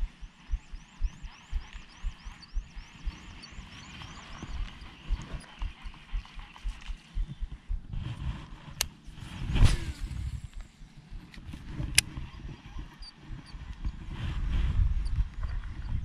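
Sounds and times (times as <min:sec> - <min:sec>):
high chirping calls: 0:00.0 - 0:07.8
muffled thumps on microphone: 0:00.0 - 0:12.3.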